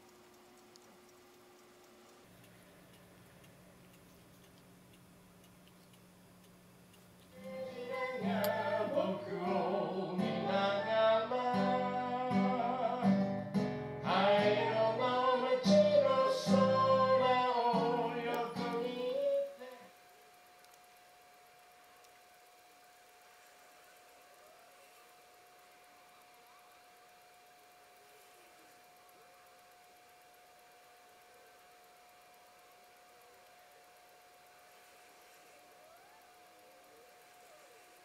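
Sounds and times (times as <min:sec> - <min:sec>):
person singing folk song: 0:07.3 - 0:19.9
acoustic guitar: 0:09.5 - 0:19.2.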